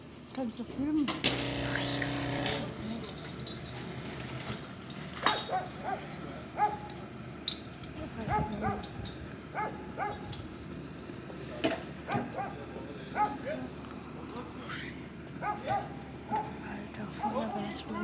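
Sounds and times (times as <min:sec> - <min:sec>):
dog yipping: 0:05.5 - 0:06.9, 0:08.3 - 0:10.3, 0:12.1 - 0:12.6, 0:15.4 - 0:16.6.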